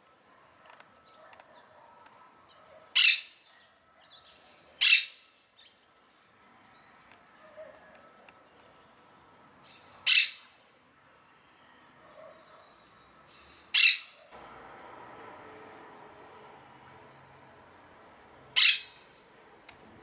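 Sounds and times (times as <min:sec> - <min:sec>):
parakeet squawking harshly: 0:03.0 - 0:03.5, 0:04.8 - 0:05.2, 0:10.0 - 0:10.5, 0:13.7 - 0:14.2, 0:18.6 - 0:19.0.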